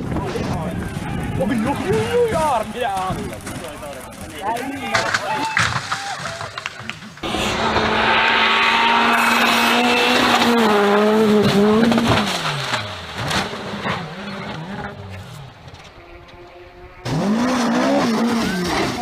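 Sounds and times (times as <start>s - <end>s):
rally car engine revving: 7.2s - 19.0s.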